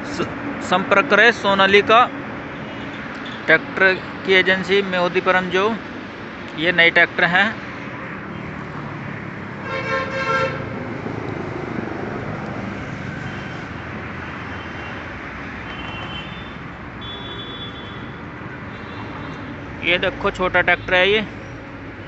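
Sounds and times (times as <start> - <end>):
road traffic noise: 0.0 - 22.0
vehicle horn: 9.6 - 10.7, 15.6 - 19.4.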